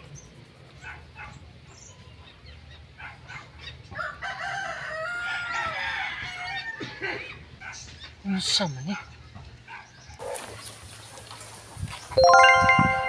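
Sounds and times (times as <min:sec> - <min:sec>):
rooster crowing: 0:04.0 - 0:06.8.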